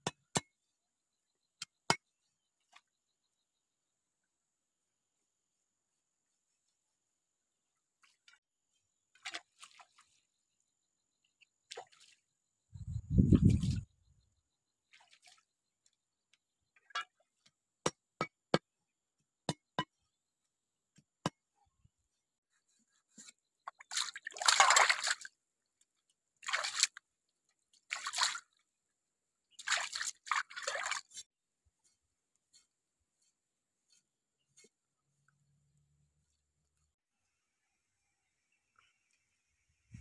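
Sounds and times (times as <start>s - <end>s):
water splashing and sloshing: 9.0s - 10.4s, 11.4s - 12.4s, 13.2s - 13.9s, 14.8s - 16.0s, 23.1s - 25.4s, 26.4s - 28.6s, 29.5s - 31.3s.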